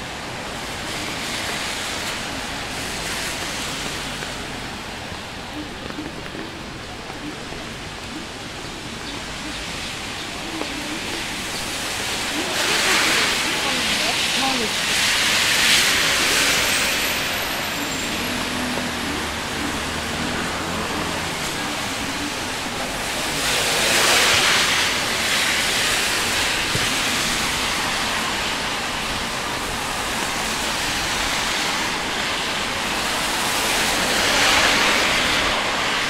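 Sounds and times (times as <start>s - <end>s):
rain hiss: 0.0s - 36.0s
tyres swishing on wet road: 0.0s - 36.0s.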